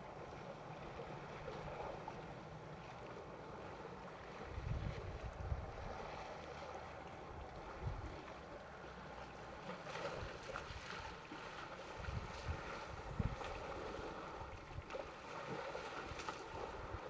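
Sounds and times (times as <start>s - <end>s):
wind buffeting microphone: 4.4s - 6.3s, 7.3s - 8.2s, 10.1s - 15.1s.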